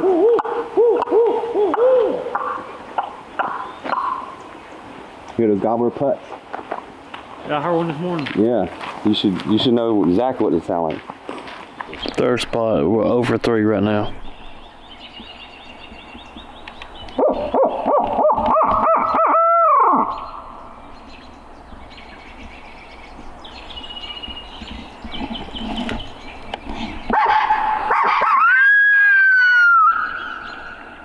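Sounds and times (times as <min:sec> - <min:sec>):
long rising owl hoot: 0:00.0 - 0:02.4
owl call hooting: 0:00.0 - 0:04.5, 0:17.2 - 0:20.5, 0:27.1 - 0:31.0.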